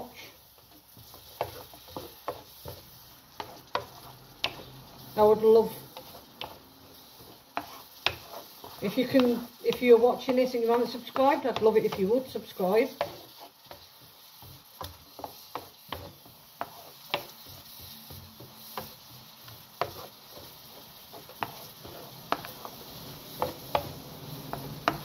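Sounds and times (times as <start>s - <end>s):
onions sizzling in pan: 0.0s - 25.0s
wooden spoon knocking pan: 23.4s - 25.0s.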